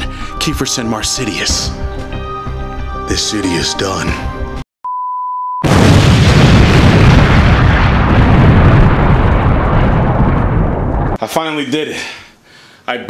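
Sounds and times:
high beep: 4.8 - 5.7
loud rumbling explosion: 5.6 - 11.2.

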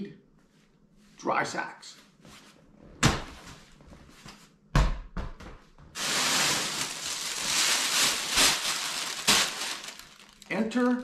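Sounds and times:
plastic bag crinkling: 6.0 - 11.0.

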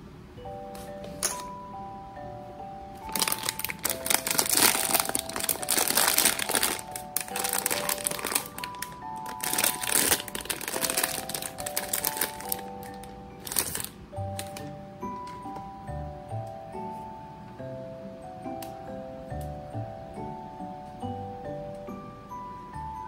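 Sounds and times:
light background music: 0.0 - 23.0
foil pouch crinkling and tearing: 3.0 - 14.7.

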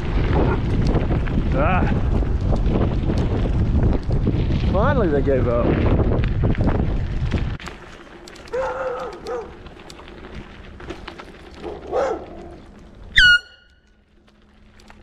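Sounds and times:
bicycle tyres rolling over gravel: 0.0 - 15.0
dogs barking: 8.5 - 9.6, 11.6 - 12.6.

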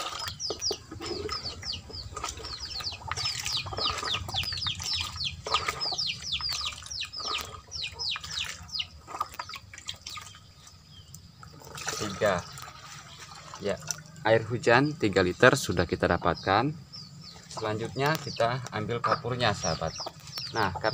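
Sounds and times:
bird chirping rapidly: 0.0 - 11.3, 14.6 - 20.9
water sloshing in basin: 0.0 - 14.6, 17.3 - 18.4.

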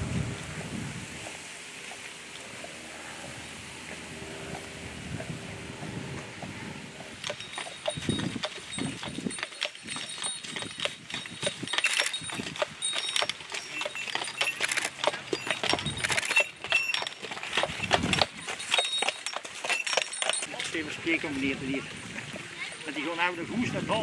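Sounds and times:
hooves clip-clopping on pavement: 4.5 - 23.1
metallic jingles: 7.2 - 24.0.

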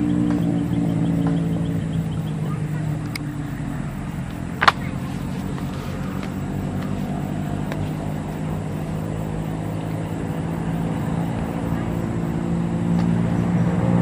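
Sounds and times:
engine humming: 0.0 - 14.0.

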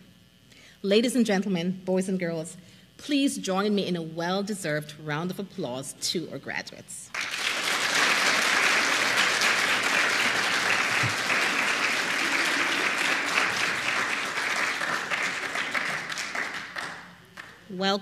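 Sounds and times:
audience applauding: 7.1 - 17.6.

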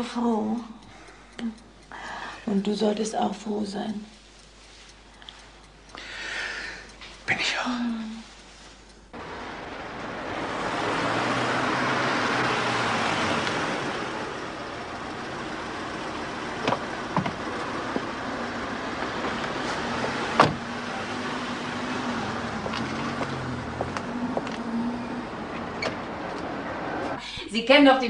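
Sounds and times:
traffic noise: 4.2 - 28.0
car passing: 9.2 - 27.2.

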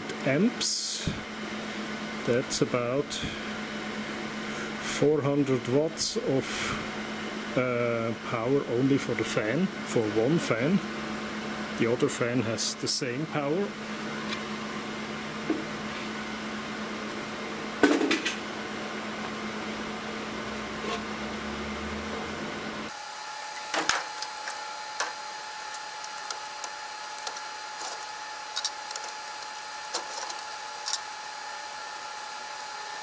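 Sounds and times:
steady background hum: 0.0 - 33.0
cables and connectors clicking: 23.8 - 31.0.

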